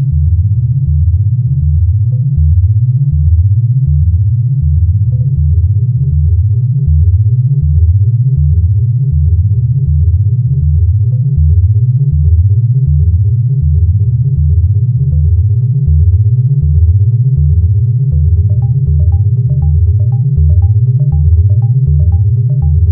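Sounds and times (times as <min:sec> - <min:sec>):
quick steady electronic pulse: 0:18.2 - 0:22.9
synthesizer bass figure: 0:18.4 - 0:22.9
held drone tones: 0:18.5 - 0:22.9
high electronic blips: 0:18.5 - 0:22.9.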